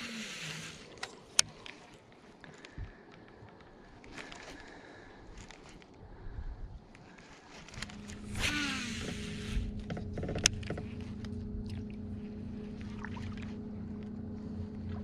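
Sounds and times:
fishing line whizzing off reel: 0.0 - 1.0, 7.6 - 9.8
electric motor humming: 0.0 - 1.1, 7.8 - 15.0
reel ticking while cranked: 0.0 - 1.1, 8.3 - 10.7.

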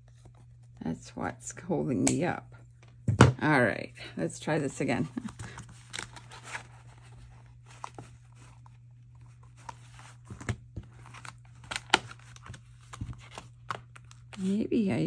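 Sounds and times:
plastic folder crinkling: 5.1 - 14.8.

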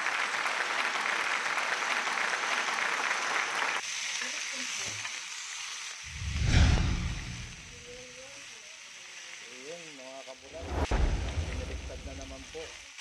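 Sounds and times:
steaks sizzling in a skillet: 3.6 - 6.2, 7.6 - 13.0.

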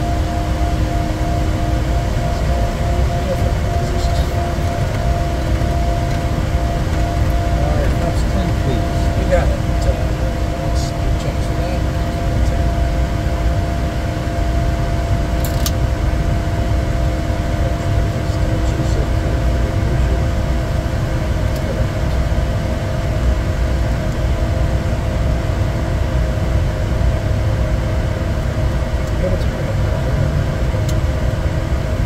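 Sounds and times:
faint steady hums: 0.0 - 32.0
low turbofan drone: 0.0 - 32.0.

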